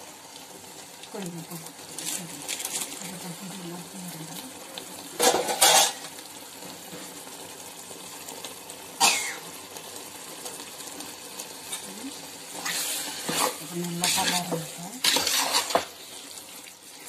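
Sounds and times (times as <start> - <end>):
pot simmering hiss: 0.0 - 17.0
person coughing: 9.0 - 9.4.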